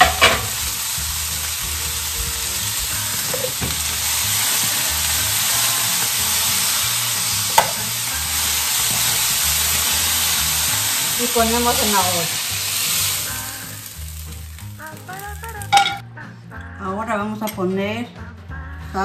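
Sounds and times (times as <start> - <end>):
peppers sizzling in frying pan: 0.0 - 16.0
spoon knocking against pan: 7.5 - 7.8.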